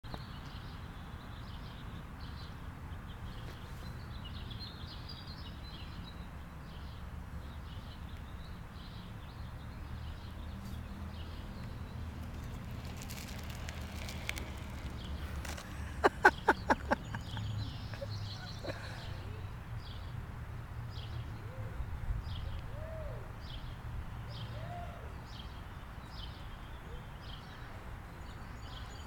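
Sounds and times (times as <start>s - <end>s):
small birds chirping: 0.1s - 20.1s
wooden bike rolling on asphalt: 9.4s - 18.3s
low outdoor rumble: 10.1s - 19.4s.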